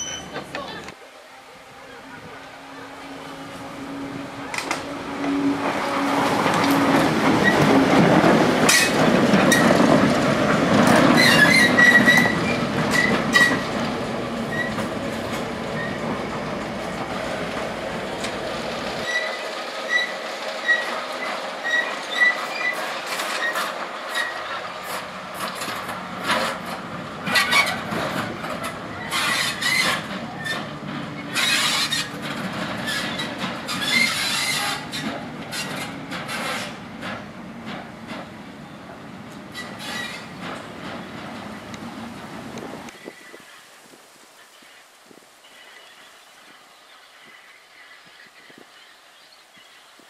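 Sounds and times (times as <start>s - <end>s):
wheel squeals: 0.0s - 0.8s, 4.4s - 7.9s, 11.0s - 13.8s, 14.4s - 14.9s, 15.7s - 16.1s, 19.0s - 36.8s, 39.5s - 40.7s
diesel locomotive engine running: 0.0s - 43.0s
wheels clicking on rails: 2.2s - 43.1s.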